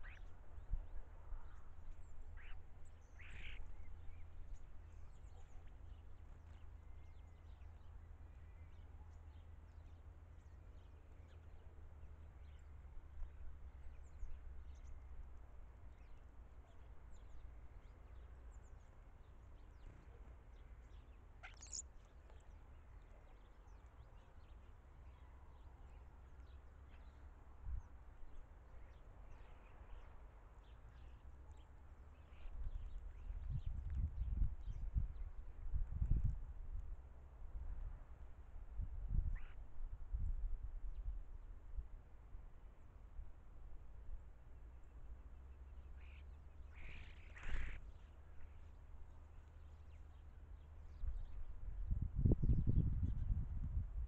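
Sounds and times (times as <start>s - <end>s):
bird calls: 0.0s - 0.3s, 2.0s - 7.7s, 19.6s - 23.8s, 45.8s - 48.7s.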